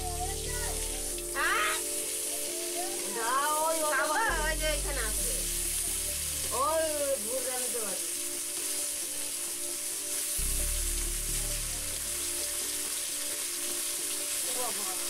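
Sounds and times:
fish sizzling in hot oil: 0.0s - 15.0s
low rumble: 10.4s - 12.4s.

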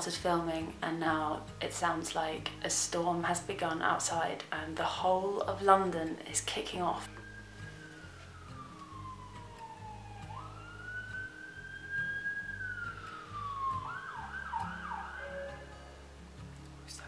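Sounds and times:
emergency siren wailing: 7.0s - 16.1s.

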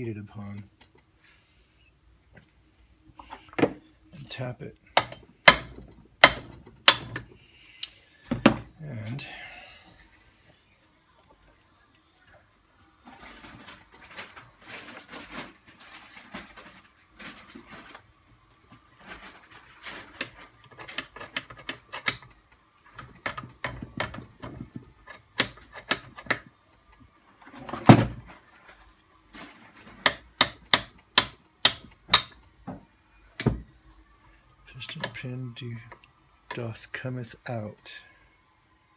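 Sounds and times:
metal tapping and clinking: 4.9s - 7.4s.

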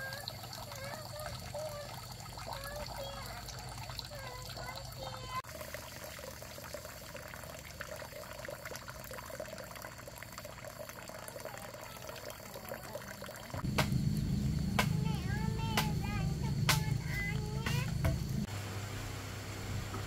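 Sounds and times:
running water: 0.0s - 20.0s
low hum: 13.6s - 20.0s.

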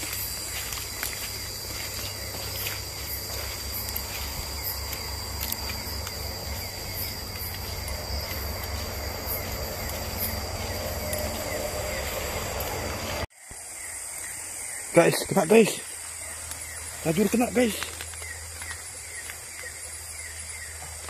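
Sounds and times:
insect chirps: 0.0s - 21.0s
insects trilling: 0.0s - 21.0s
steady low rumble: 0.1s - 13.3s.

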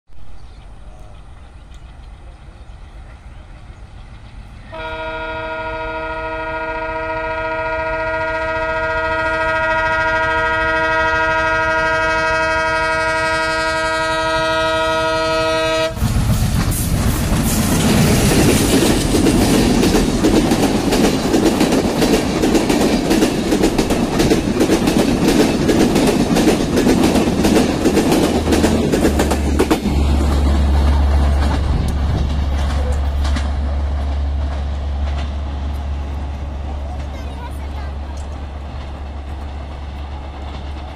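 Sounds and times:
train running noise: 0.2s - 40.9s
train horn blast: 4.7s - 16.0s
wheels clattering over rail joints: 16.0s - 40.9s.

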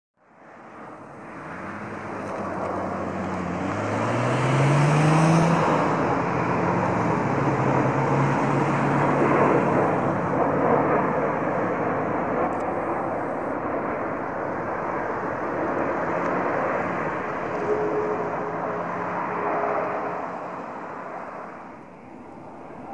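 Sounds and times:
jet engine rush: 0.2s - 22.9s.

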